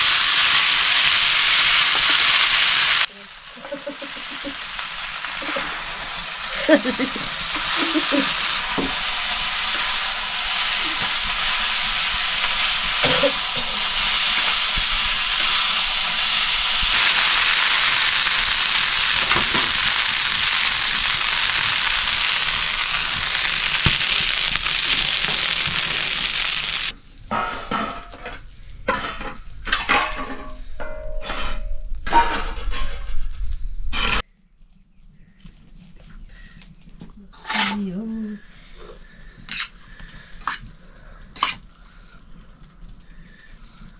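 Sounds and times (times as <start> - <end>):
food sizzling in a hot pan: 0.0 - 27.0, 37.4 - 43.9.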